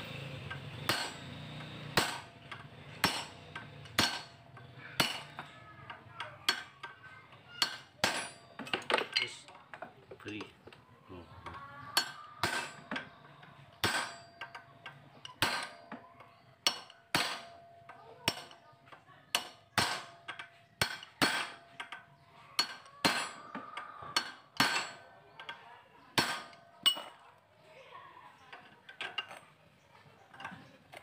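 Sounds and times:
hammer striking metal drift: 0.2s - 4.4s, 5.0s - 5.5s, 13.8s - 14.5s.

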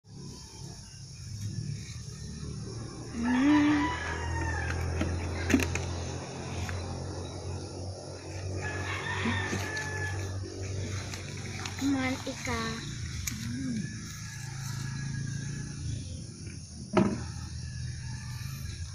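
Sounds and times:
rooster crowing: 2.1s - 5.5s, 8.4s - 11.4s, 13.5s - 18.9s.

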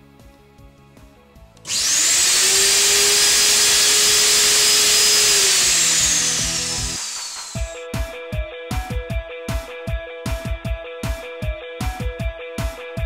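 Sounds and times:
suction turbine motor whining: 1.7s - 7.8s.

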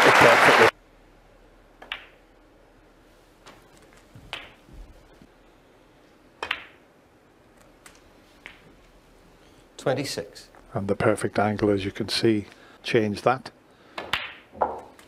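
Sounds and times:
snooker balls clicking: 1.8s - 2.2s, 4.0s - 4.7s, 6.4s - 6.8s.

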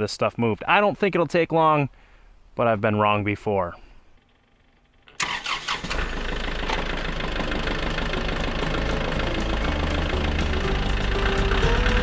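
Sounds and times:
tractor diesel engine running: 4.1s - 12.0s.

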